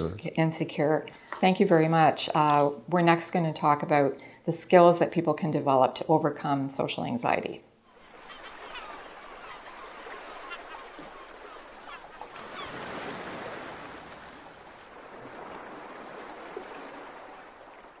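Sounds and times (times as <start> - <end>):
gulls calling: 7.9 - 13.5
surf washing on beach: 8.0 - 18.0.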